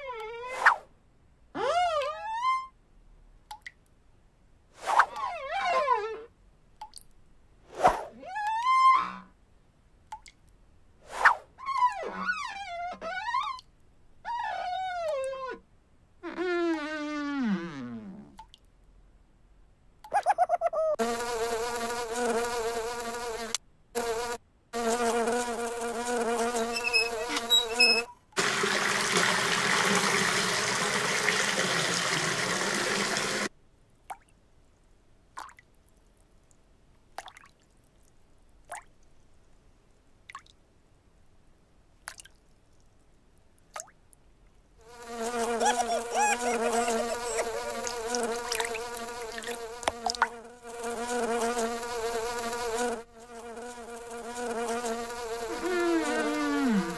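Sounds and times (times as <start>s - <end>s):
housefly buzzing: 21.0s - 29.0s, 44.8s - 56.9s
running water: 26.7s - 33.5s, 45.6s - 50.4s.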